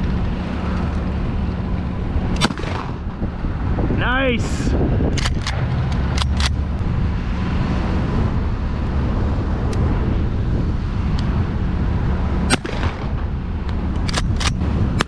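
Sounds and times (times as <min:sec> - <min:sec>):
wind rumble on microphone: 0:00.0 - 0:15.0
shotgun shot: 0:02.4 - 0:03.0, 0:12.5 - 0:13.2.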